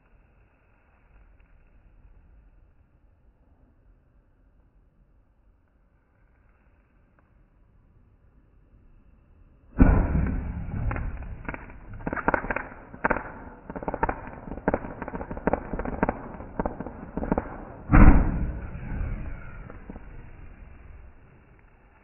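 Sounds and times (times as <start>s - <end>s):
firework loud bang: 9.8s - 21.7s
firework crackling pops: 9.8s - 22.0s.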